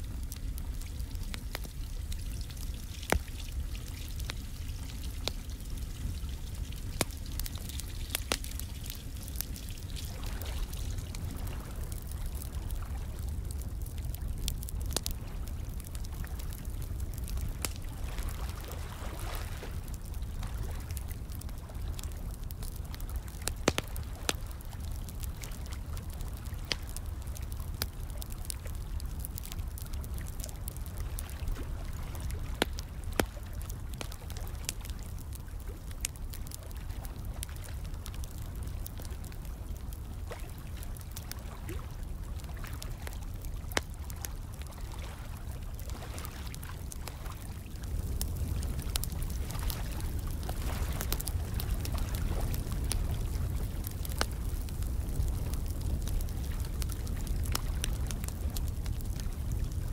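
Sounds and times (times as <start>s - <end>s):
fire crackling: 0.0s - 59.9s.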